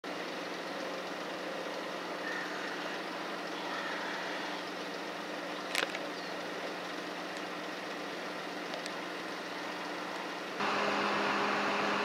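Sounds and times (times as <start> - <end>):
engines idling: 0.0 - 12.0.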